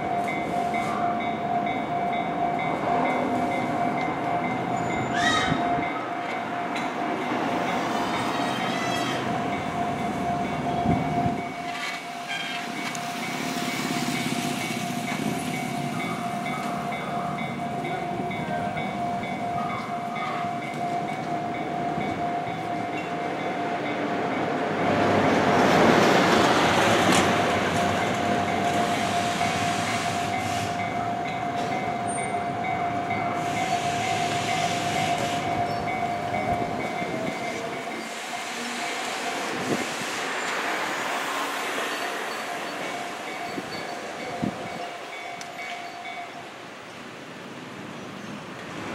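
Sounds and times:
train passing: 0.0s - 48.9s
level crossing bell ringing: 27.5s - 39.4s.

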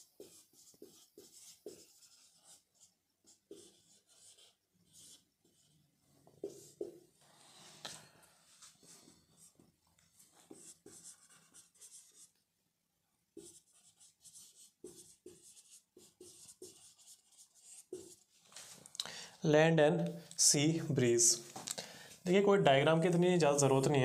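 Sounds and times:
marker scratching on whiteboard: 0.0s - 12.4s, 13.4s - 18.8s.

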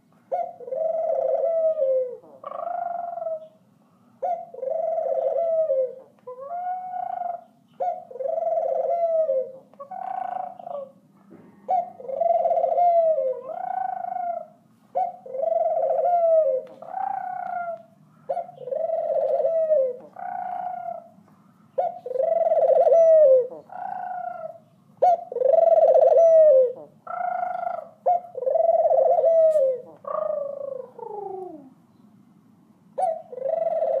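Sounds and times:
dove cooing: 0.0s - 3.6s, 4.2s - 31.8s, 33.0s - 34.0s.

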